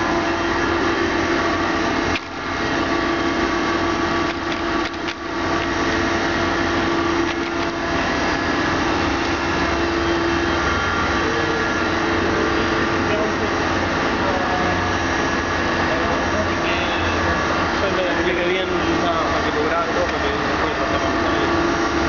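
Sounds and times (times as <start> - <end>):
machine hum: 0.0 - 22.0
mid-pitched tone: 8.9 - 18.2.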